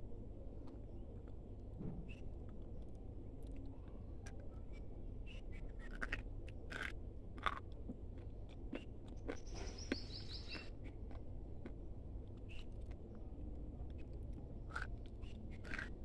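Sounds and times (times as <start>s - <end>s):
chewing crunchy clay: 5.6s - 16.0s.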